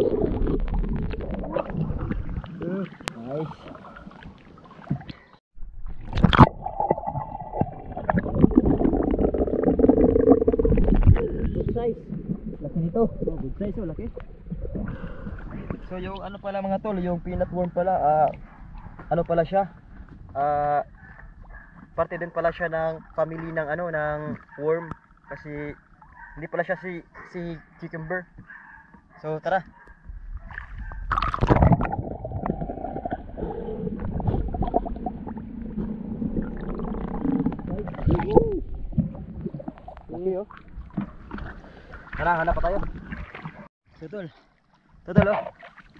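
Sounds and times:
underwater rushing surge: 0.0s - 2.6s, 5.6s - 15.9s
water sloshing and gurgling: 0.0s - 19.0s, 19.8s - 45.9s.

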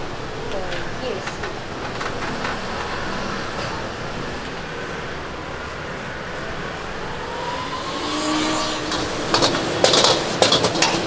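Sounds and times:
street noise: 0.0s - 11.0s
vehicle passing by: 2.7s - 11.0s
rapid sharp clacks and clatter: 8.8s - 11.0s.

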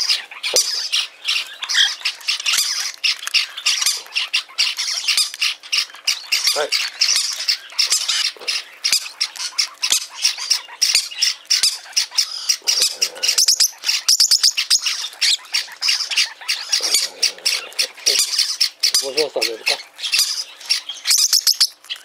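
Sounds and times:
bird chicks rasping begging calls: 0.0s - 22.0s.

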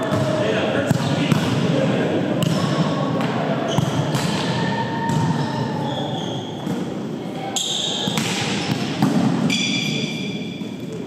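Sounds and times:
volleyball hits: 0.0s - 5.7s, 7.9s - 10.9s
sneakers squeaking on court: 3.7s - 11.0s.

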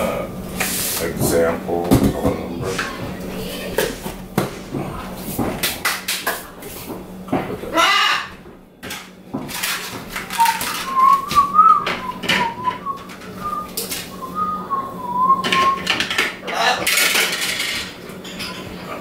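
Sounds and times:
kitchen containers and utensils clicking: 8.8s - 14.2s, 15.3s - 18.7s
person whistling a tune: 10.4s - 15.9s.

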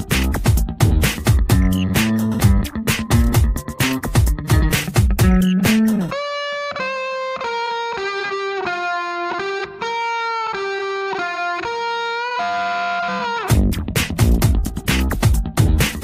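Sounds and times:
melodic background music: 0.0s - 6.2s.

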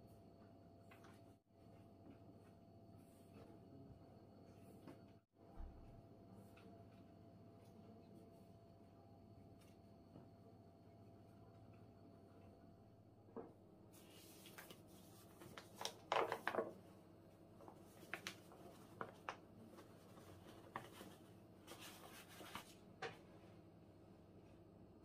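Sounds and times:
paper bag rustling: 14.0s - 16.8s.

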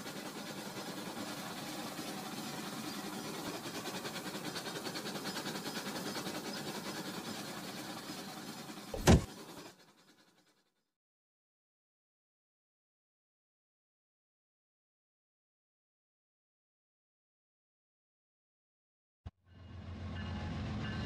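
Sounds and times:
wheels rattling on track: 0.0s - 10.6s
toy train motor whir: 0.0s - 10.8s
sharp knock: 9.0s - 9.3s.

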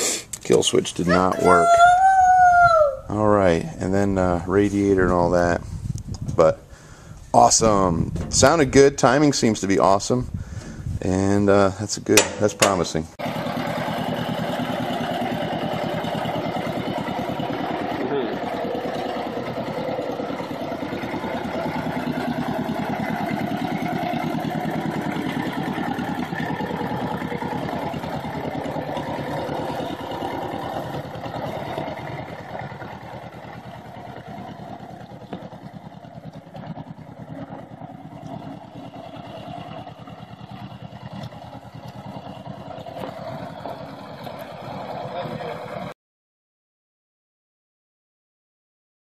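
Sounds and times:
tractor engine running: 3.7s - 11.2s, 12.1s - 45.9s.

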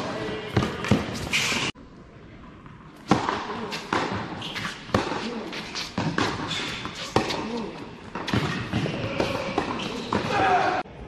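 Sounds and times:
tennis ball bounces: 3.0s - 10.3s.

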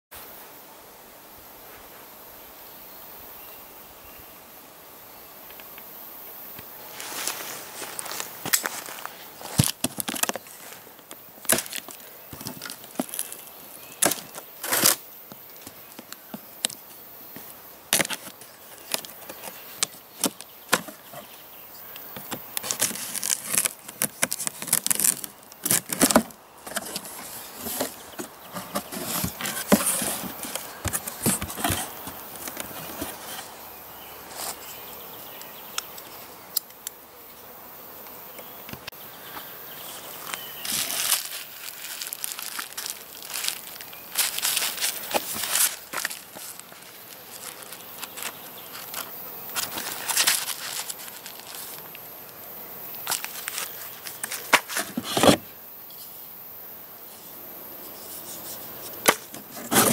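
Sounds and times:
cardboard flaps rustling: 7.0s - 15.0s, 17.9s - 21.3s, 22.2s - 33.5s, 40.6s - 51.8s, 58.9s - 59.9s
knife slicing packing tape: 14.0s - 15.0s.

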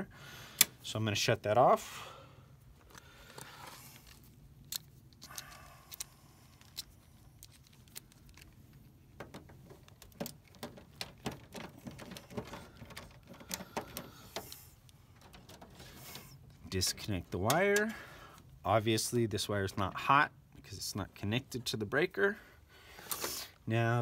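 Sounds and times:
screwdriver clicking and scraping metal: 2.9s - 16.3s.

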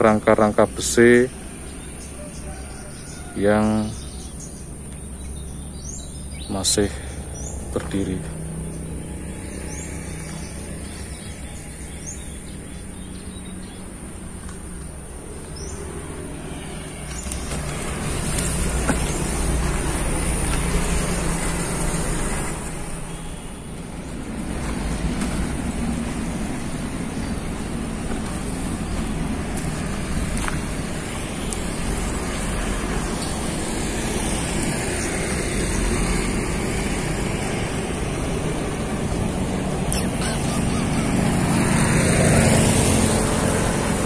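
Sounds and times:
road traffic rumble: 0.0s - 44.0s.

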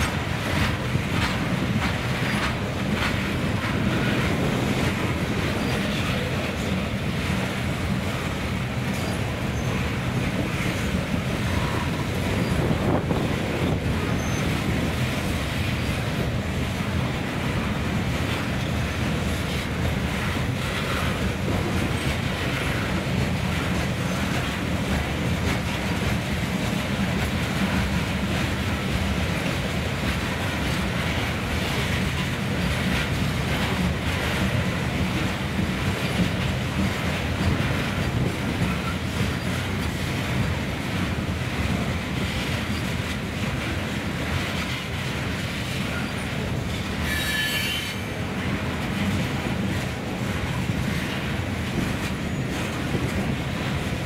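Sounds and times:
train wheels rumbling on rails: 0.0s - 54.0s
high-pitched wheel squeal: 47.0s - 48.1s.

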